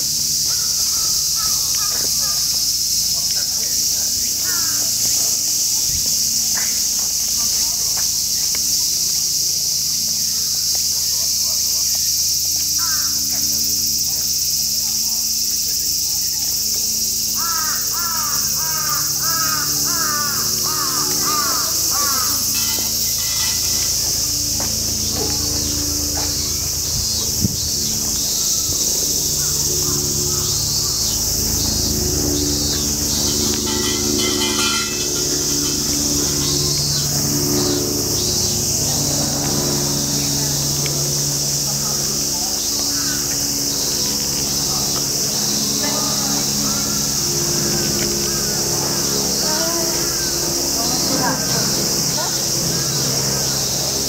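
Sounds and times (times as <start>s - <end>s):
cicadas droning: 0.0s - 54.0s
crows cawing: 0.5s - 2.6s, 4.4s - 5.2s, 12.8s - 13.3s, 17.4s - 26.4s, 32.6s - 35.6s, 42.5s - 43.8s.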